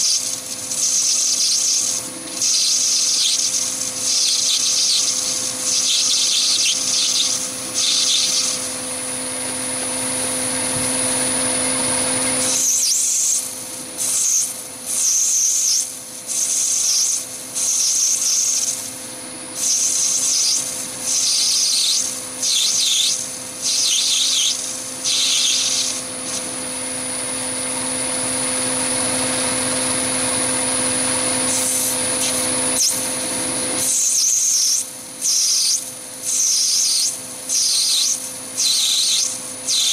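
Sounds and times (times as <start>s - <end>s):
hissing cutting of brass: 0.0s - 9.2s, 12.3s - 26.6s, 31.4s - 39.9s
lathe humming and whining: 0.0s - 39.9s.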